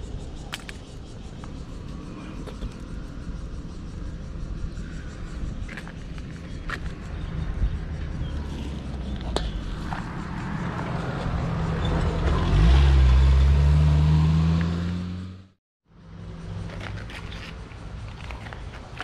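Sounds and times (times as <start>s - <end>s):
motorcycle engine revving: 9.8s - 15.6s.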